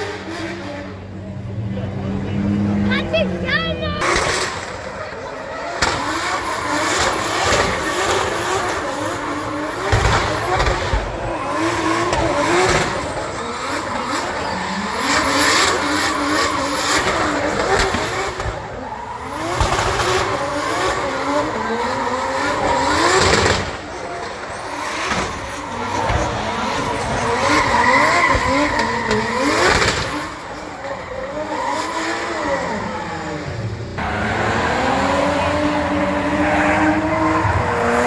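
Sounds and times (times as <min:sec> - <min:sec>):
car engines revving hard: 0:00.0 - 0:38.0
tyres screeching: 0:04.0 - 0:33.4.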